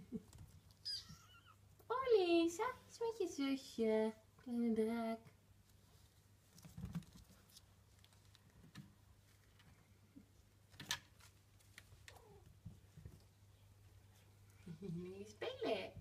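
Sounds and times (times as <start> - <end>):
kittens scampering on bedding: 5.7 - 14.7.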